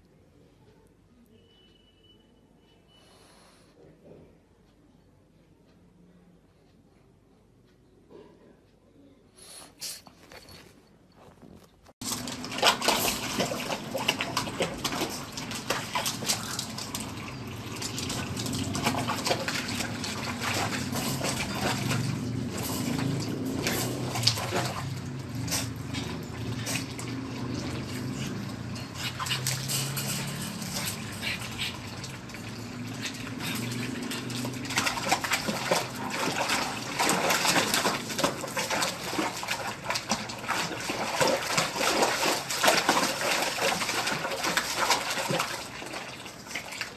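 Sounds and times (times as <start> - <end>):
running water: 12.0 - 46.9
water splashing in a tub: 12.0 - 46.9.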